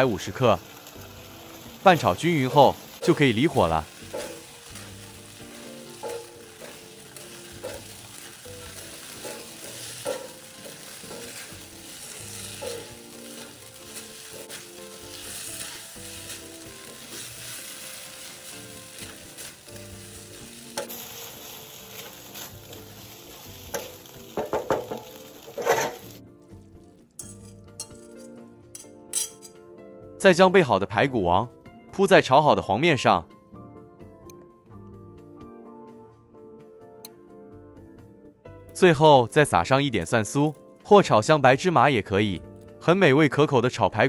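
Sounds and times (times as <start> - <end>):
noodles sizzling in a wok: 0.0 - 28.2
soft background music: 0.0 - 44.0
spatula scraping pan: 3.9 - 26.2.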